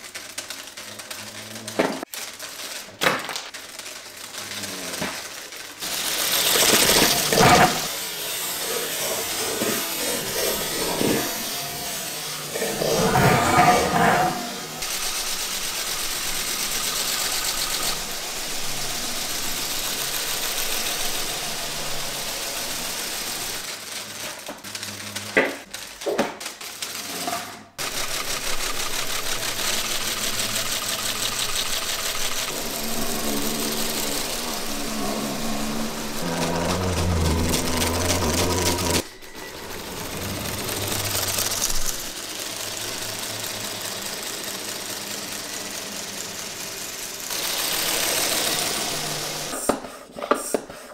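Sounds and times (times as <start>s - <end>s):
pneumatic engine rattling: 5.8s - 11.5s, 12.4s - 23.6s, 27.1s - 49.8s.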